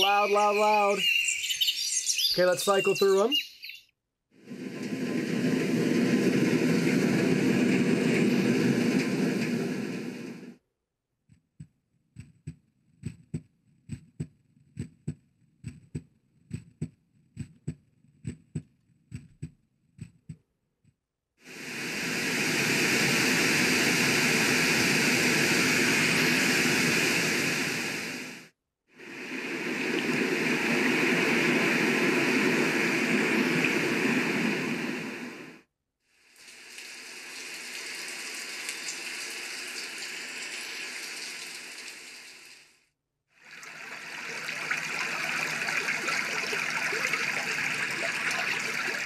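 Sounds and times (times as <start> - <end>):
loud steady rushing noise: 4.5 - 10.5, 21.5 - 28.4, 29.0 - 35.6
soft low thumps in pairs: 11.3 - 21.0.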